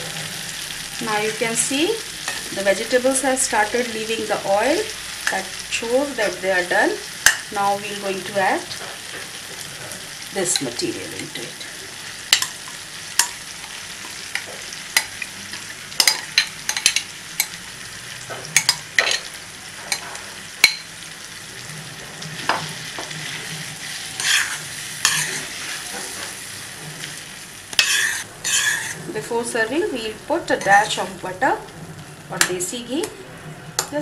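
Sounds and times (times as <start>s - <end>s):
frying sizzle: 0.0s - 34.0s
spoon stirring and scraping: 18.4s - 20.8s, 22.4s - 27.2s, 27.8s - 29.1s.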